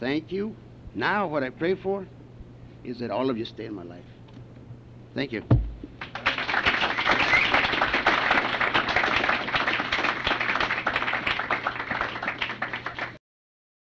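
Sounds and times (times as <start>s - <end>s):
audience applauding: 6.0s - 13.2s.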